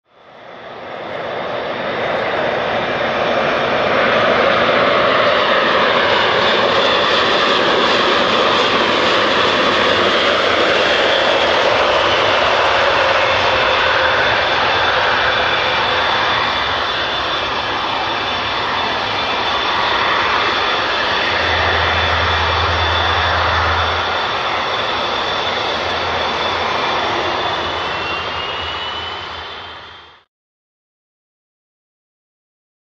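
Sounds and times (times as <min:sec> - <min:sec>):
turboprop engines roaring: 0:00.1 - 0:30.3
high whine: 0:00.7 - 0:30.2.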